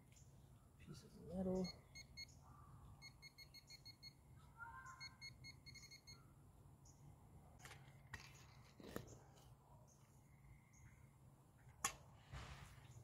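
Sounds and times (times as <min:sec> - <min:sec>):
faint rapid high-pitched beeps: 0:01.6 - 0:02.4, 0:03.0 - 0:04.2, 0:04.8 - 0:06.2.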